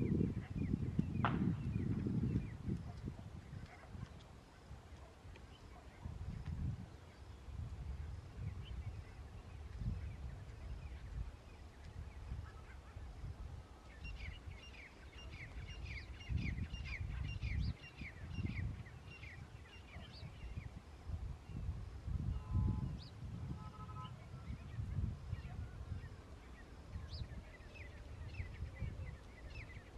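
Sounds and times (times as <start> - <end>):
francolins calling: 13.8 - 20.7.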